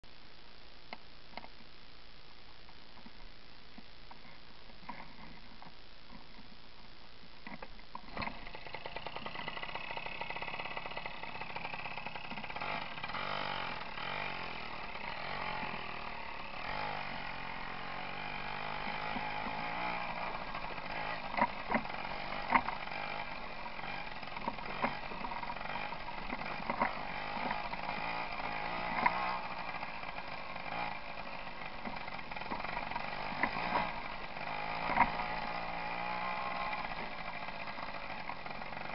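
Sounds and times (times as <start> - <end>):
moped engine running: 8.1 - 38.9.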